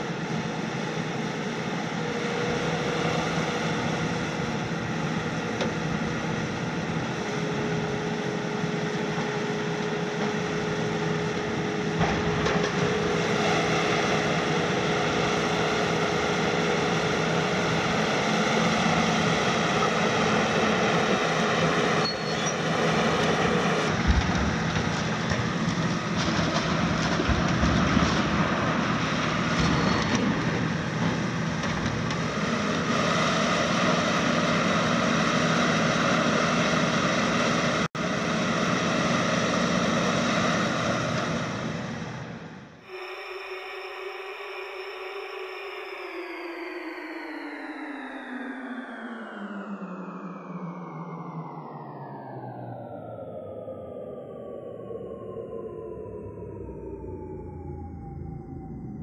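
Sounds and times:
excavator diesel engine running: 0.0 - 49.4
demolition debris knocks and crunches: 23.4 - 32.7.

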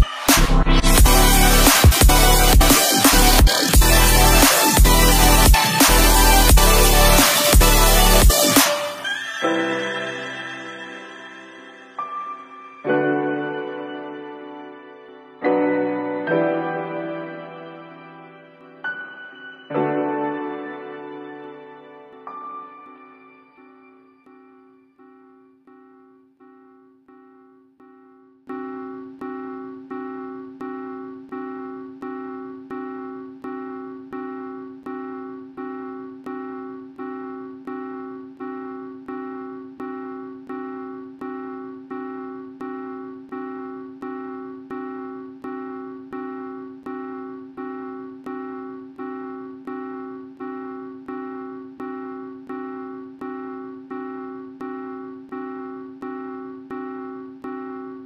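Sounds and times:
repeated piano chord: 9.5 - 24.4.

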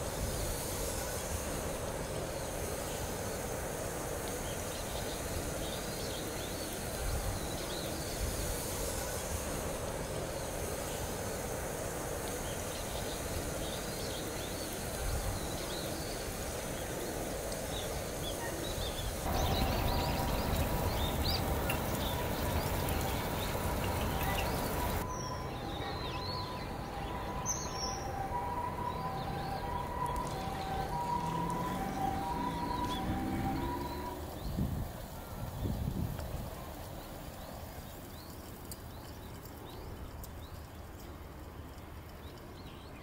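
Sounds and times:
faint steady tones: 0.0 - 43.0
steady background hiss: 0.0 - 43.0
small birds chirping: 12.3 - 43.0.

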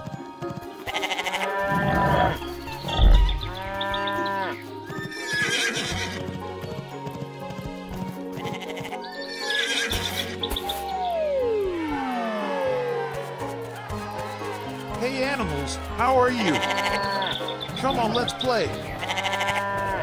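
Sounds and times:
background music: 0.0 - 20.0
farm animal calls: 0.9 - 6.2, 8.4 - 10.8, 16.3 - 20.0
low thump: 2.9 - 3.6.

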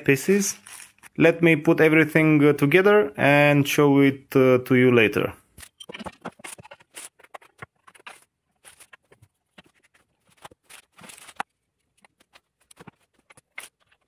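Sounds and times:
rustling: 0.2 - 1.2, 5.6 - 14.0.

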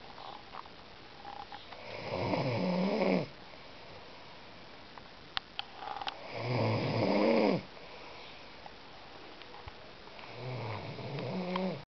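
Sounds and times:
boy snoring: 1.8 - 3.3, 6.2 - 7.7, 10.3 - 11.8.

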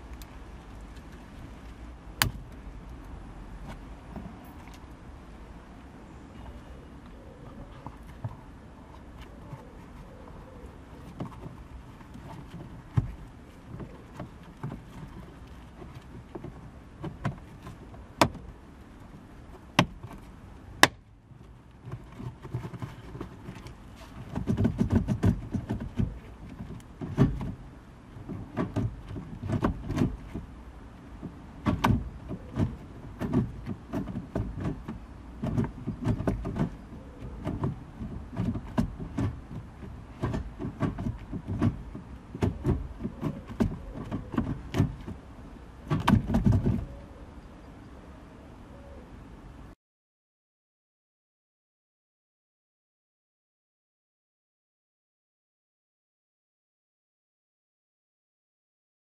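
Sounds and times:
rustling and bumping of leather: 7.5 - 47.0.

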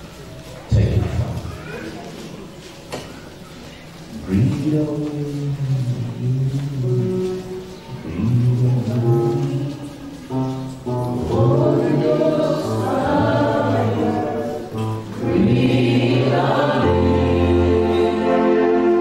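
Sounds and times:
low held accompanying notes: 4.3 - 19.0
choir singing slow gospel song: 10.9 - 19.0.

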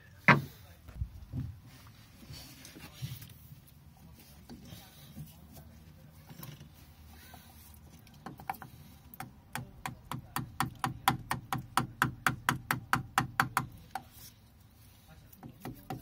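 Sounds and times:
rubber mallet tapping wood: 8.2 - 14.1.

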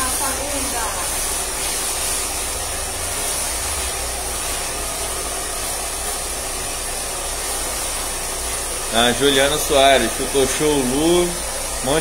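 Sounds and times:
brush through hair: 0.0 - 12.0
hair dryers blowing: 0.0 - 12.0.

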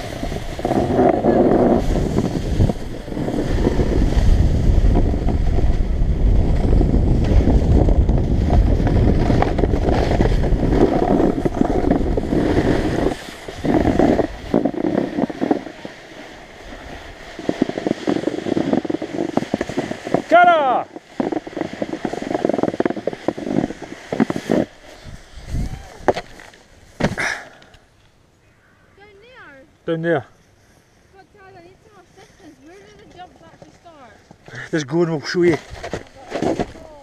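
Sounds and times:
wind rushing over microphone: 0.0 - 26.9
skis scraping over snow: 0.0 - 27.4, 31.1 - 37.0.

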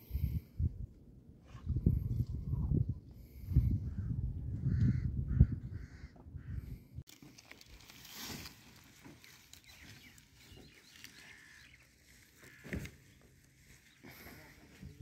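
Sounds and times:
distant bird calls: 9.2 - 14.4.

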